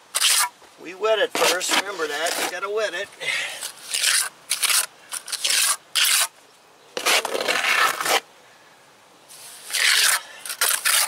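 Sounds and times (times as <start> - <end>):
trowel scraping stucco: 0.1 - 0.5, 1.2 - 2.8, 3.4 - 6.4, 7.0 - 8.2, 9.3 - 11.0.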